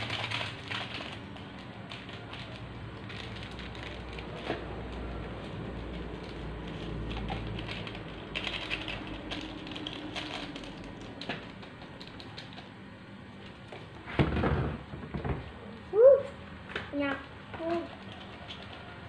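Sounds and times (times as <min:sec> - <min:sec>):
foil lids crackling: 0:00.0 - 0:12.7
plastic sachets crinkling and tearing: 0:00.0 - 0:12.7, 0:17.0 - 0:19.0.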